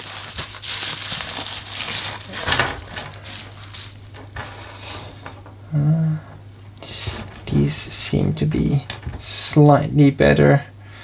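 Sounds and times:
bubble wrap crinkling: 0:00.0 - 0:05.5.

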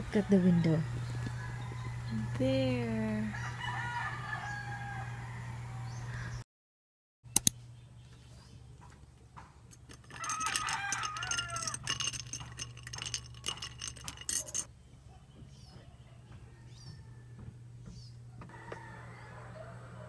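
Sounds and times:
sharp clicks: 0:07.3 - 0:07.6
ice clinking in glass: 0:09.8 - 0:14.7.

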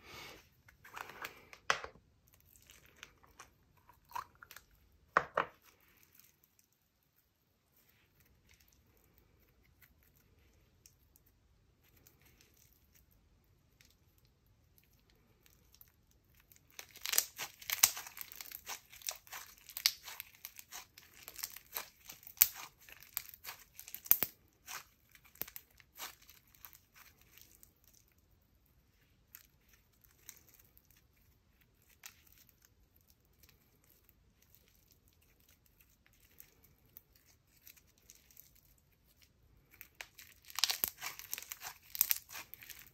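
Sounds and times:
slime crackling and popping: 0:13.7 - 0:28.2, 0:29.0 - 0:42.9.

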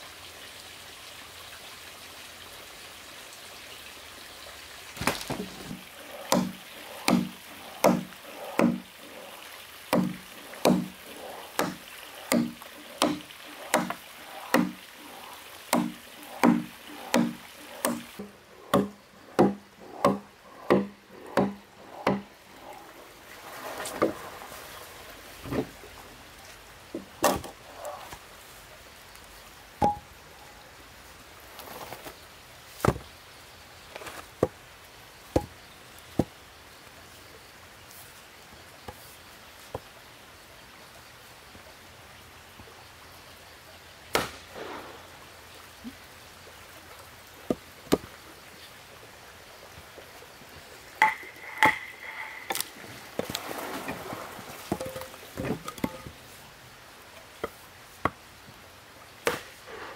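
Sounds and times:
axe chopping wood: 0:05.0 - 0:08.9, 0:09.9 - 0:14.8, 0:15.7 - 0:22.3, 0:44.1 - 0:44.4, 0:59.2 - 0:59.5.

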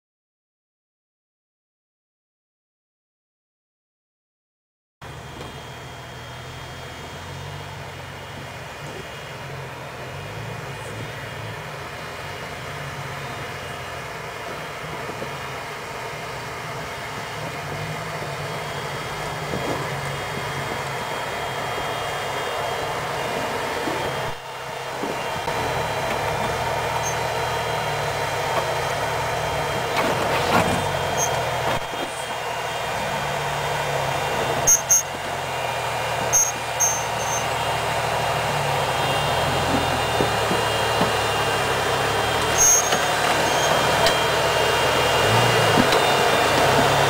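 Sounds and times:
engine running at low revs: 0:05.0 - 0:47.0.

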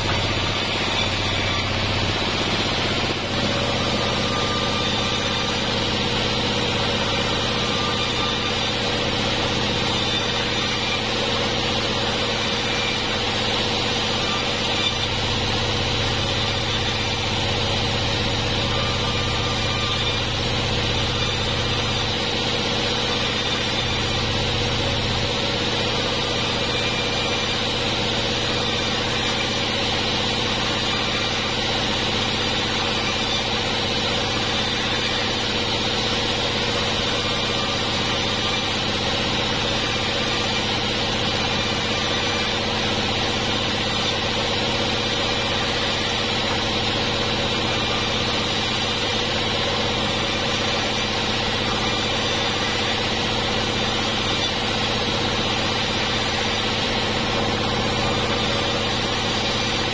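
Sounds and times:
band saw cutting wood: 0:00.0 - 0:59.9.

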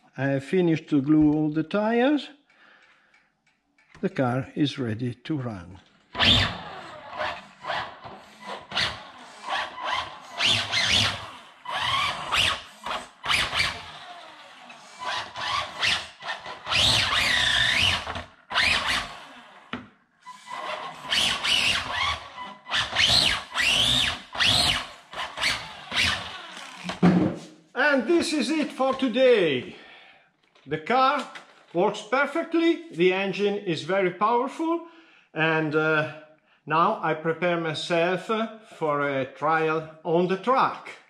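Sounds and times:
tyres squealing on wood: 0:06.1 - 0:19.4, 0:20.2 - 0:27.0
toy car electric motor whining: 0:06.1 - 0:27.0.

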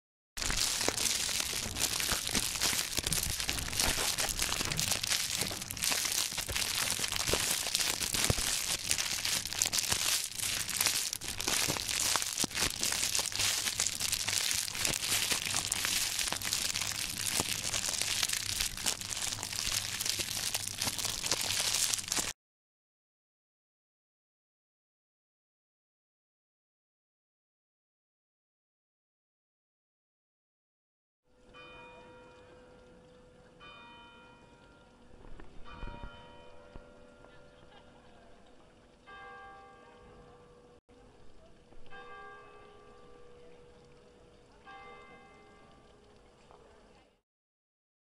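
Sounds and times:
fire crackling: 0:00.4 - 0:22.4.

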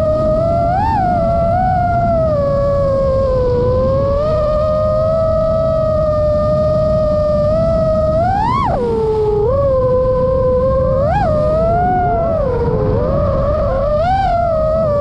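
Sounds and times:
drone motors whining: 0:00.0 - 0:15.0
low rumble: 0:09.0 - 0:15.0.

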